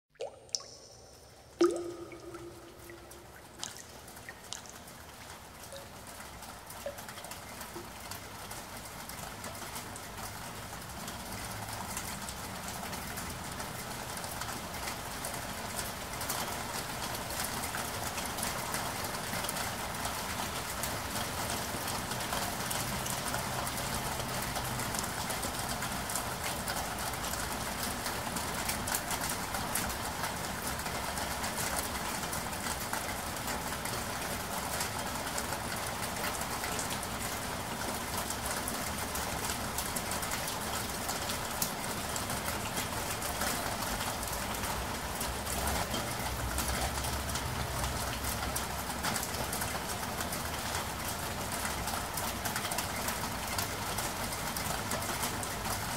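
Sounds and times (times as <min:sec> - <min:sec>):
water drips: 0:00.1 - 0:09.1
rain on hard surfaces: 0:00.2 - 0:55.9.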